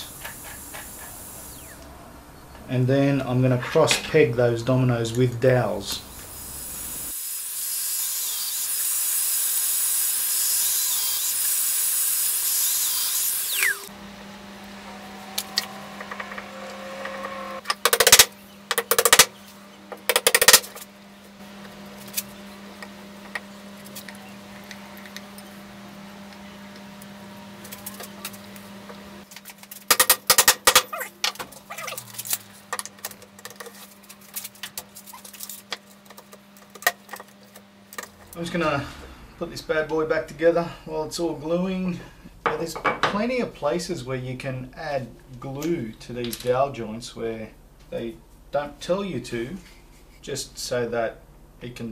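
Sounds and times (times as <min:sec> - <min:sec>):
power joiner cutting: 0:06.5 - 0:19.3
low hum: 0:13.5 - 0:29.3, 0:30.7 - 0:42.3.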